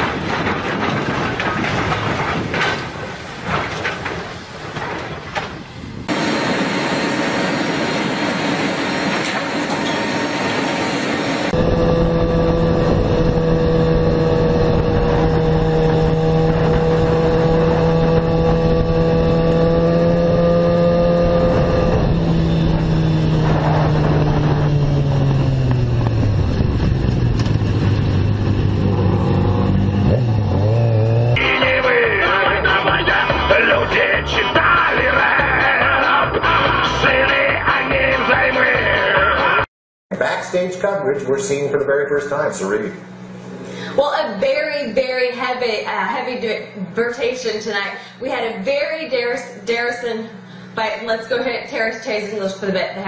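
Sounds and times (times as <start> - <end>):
aircraft engines: 0.0 - 19.8, 21.5 - 30.5
wind rushing: 10.2 - 29.6
motorcycle engine revving: 11.4 - 38.2.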